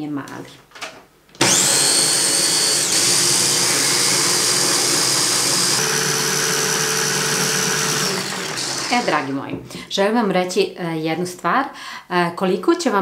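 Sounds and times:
blender motor whining: 1.4s - 9.4s.

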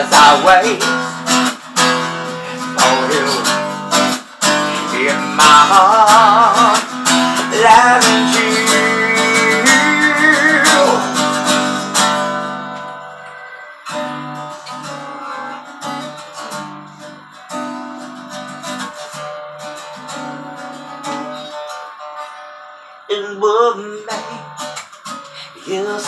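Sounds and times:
acoustic guitar strummed chords: 0.0s - 26.0s.

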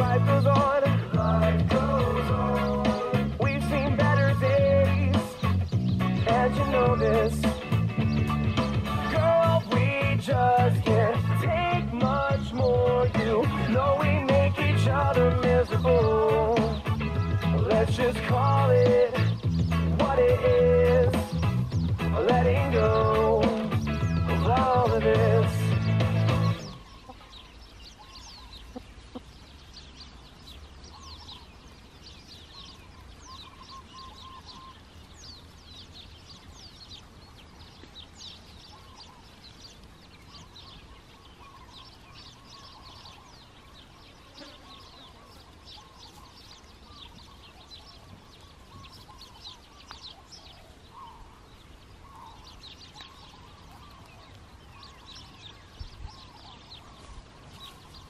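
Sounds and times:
hens clucking softly: 28.6s - 29.3s.

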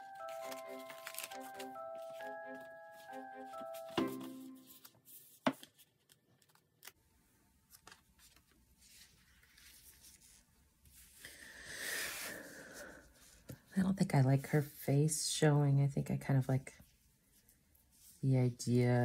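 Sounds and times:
paper rustling and sliding: 0.0s - 2.4s, 7.7s - 11.2s.

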